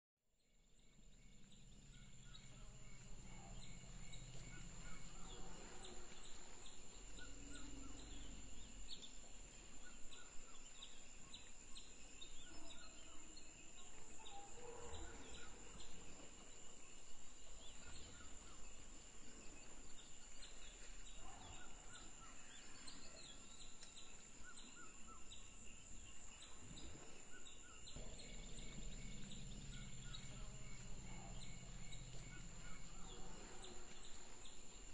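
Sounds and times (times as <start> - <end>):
bird chirps: 0.5 - 18.8, 19.6 - 34.9
high-pitched insect drone: 0.8 - 9.6, 28.0 - 34.9.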